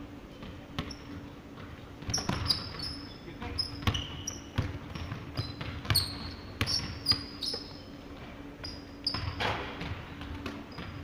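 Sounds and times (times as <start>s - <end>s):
sneakers squeaking on court: 0.4s - 11.0s
basketball bouncing on hardwood: 1.6s - 2.8s, 3.8s - 7.3s, 9.1s - 11.0s.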